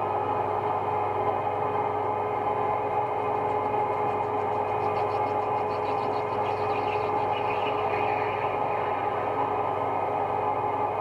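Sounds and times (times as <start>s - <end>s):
metal lathe humming: 2.4s - 11.0s.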